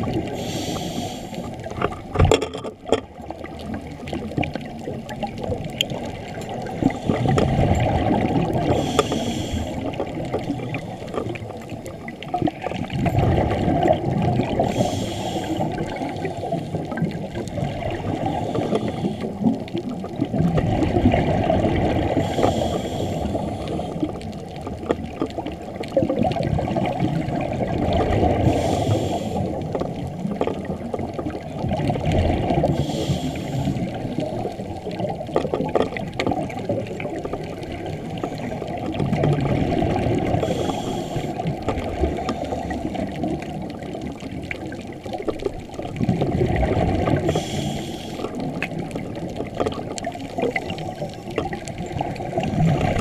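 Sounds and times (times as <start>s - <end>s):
exhaled air bubbling: 0.0s - 53.0s
scuba regulator hisses: 0.4s - 1.5s, 8.8s - 9.8s, 14.7s - 15.6s, 28.5s - 29.5s, 40.4s - 41.4s, 47.3s - 48.3s.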